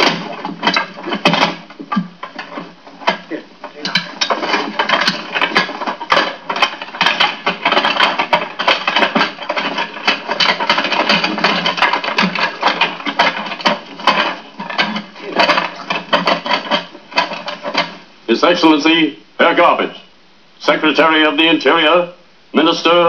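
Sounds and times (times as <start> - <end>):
wooden folding chair clattering: 0.0 - 18.1
hissy old film soundtrack: 0.0 - 23.0.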